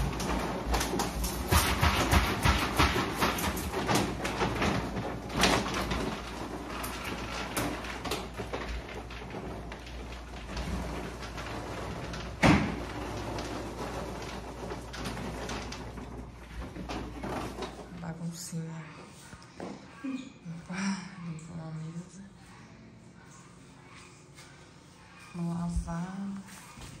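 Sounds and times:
objects knocking and clattering: 0:00.0 - 0:18.1.

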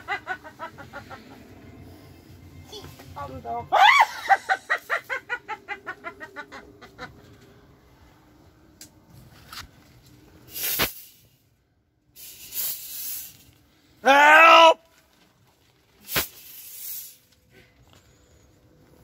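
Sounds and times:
witch's cackling laugh: 0:00.0 - 0:01.8, 0:03.8 - 0:07.4.

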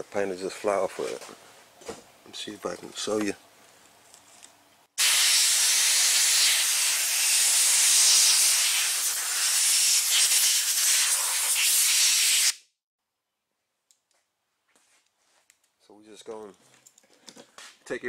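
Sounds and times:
compressed air blow gun hissing: 0:05.0 - 0:12.6.

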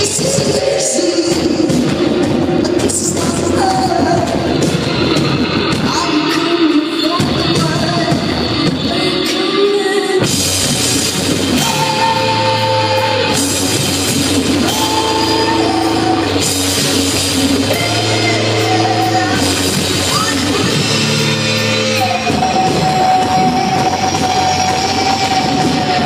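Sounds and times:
drums and cymbals: 0:00.0 - 0:26.0
electric guitar: 0:00.0 - 0:26.0
bass guitar: 0:10.2 - 0:26.0
person singing long notes: 0:11.5 - 0:26.0.

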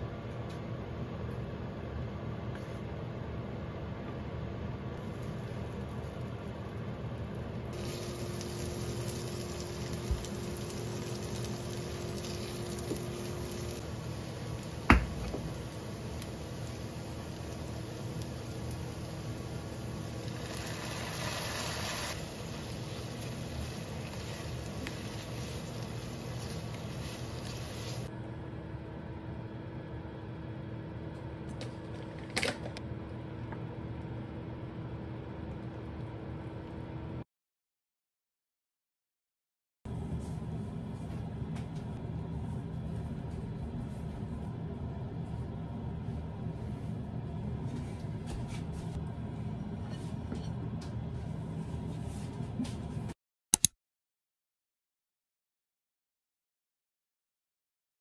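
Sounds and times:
faint hum: 0:00.0 - 0:37.2
food sizzling in oil: 0:07.8 - 0:28.1.

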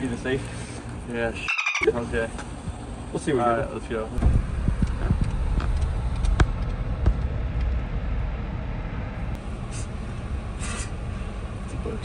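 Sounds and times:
engine and road noise rumble: 0:00.0 - 0:12.0.

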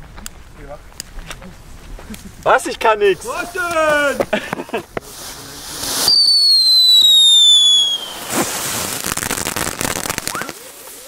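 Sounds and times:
firecracker hiss: 0:03.0 - 0:11.0
crackling pops: 0:03.2 - 0:11.0
firecracker whistle falling in pitch: 0:06.0 - 0:08.5.

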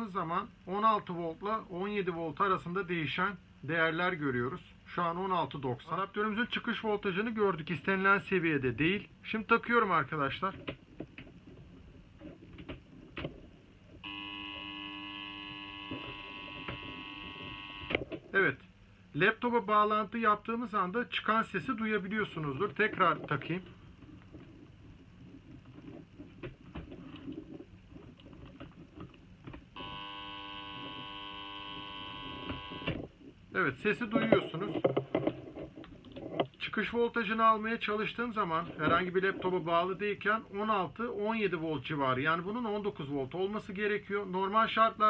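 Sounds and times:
cable clicks and rustling: 0:10.4 - 0:14.0, 0:22.4 - 0:29.8, 0:34.2 - 0:36.6
power adapter high-pitched whine: 0:14.0 - 0:18.1, 0:29.8 - 0:33.1.

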